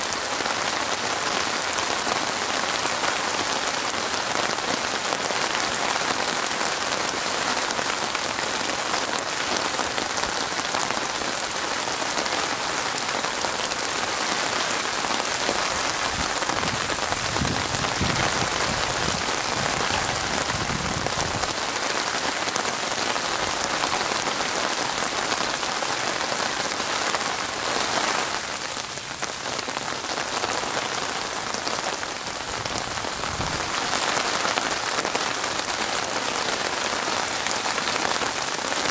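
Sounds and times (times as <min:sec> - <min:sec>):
rain falling on water: 0:00.0 - 0:38.9.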